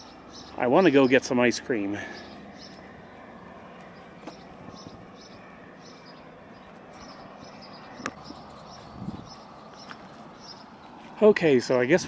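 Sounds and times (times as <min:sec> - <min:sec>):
footsteps scuffing on concrete: 0:09.6 - 0:11.2.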